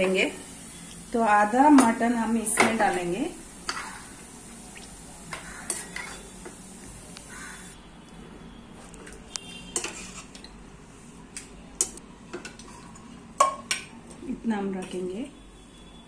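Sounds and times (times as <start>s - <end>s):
metal ladle scraping pan: 9.7s - 10.3s.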